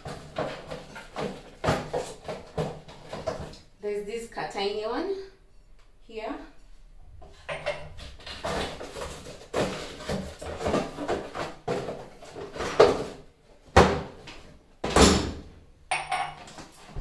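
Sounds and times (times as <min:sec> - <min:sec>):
cardboard box rustling and scraping: 0:08.1 - 0:13.3
sharp knocks of glass jars: 0:15.9 - 0:16.5.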